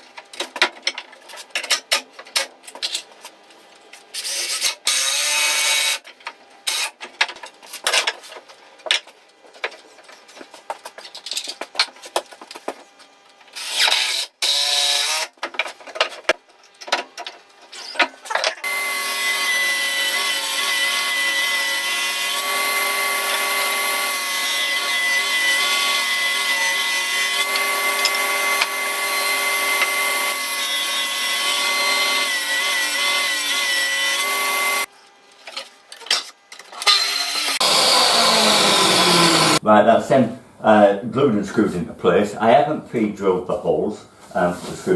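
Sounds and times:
drill driving screws: 0:13.6 - 0:15.3, 0:18.6 - 0:34.9, 0:36.8 - 0:39.6
table saw whine: 0:18.6 - 0:35.0, 0:36.7 - 0:39.6.

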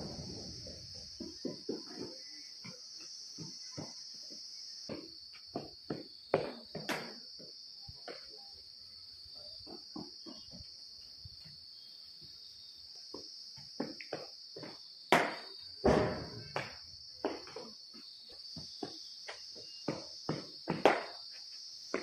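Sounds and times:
insects droning: 0:00.0 - 0:22.0
footfalls on dirt: 0:15.9 - 0:22.0.

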